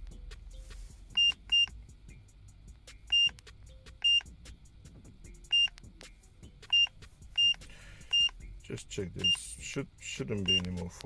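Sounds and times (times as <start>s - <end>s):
short high beeps: 4.0s - 4.2s, 5.5s - 5.7s, 6.7s - 8.3s.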